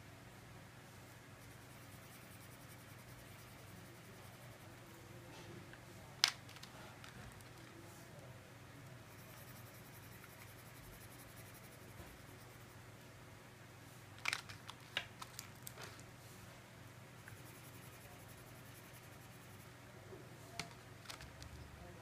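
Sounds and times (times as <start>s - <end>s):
low room hum: 0.0s - 22.0s
crayons clicking in plastic tray: 6.2s - 7.8s, 14.2s - 16.0s, 20.6s - 21.6s.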